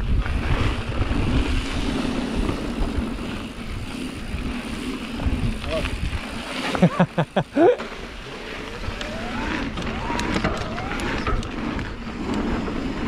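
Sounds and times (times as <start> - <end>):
tyres rumbling on dirt: 0.0 - 13.0
wind noise: 0.0 - 13.0
electric motor whine: 8.2 - 12.4.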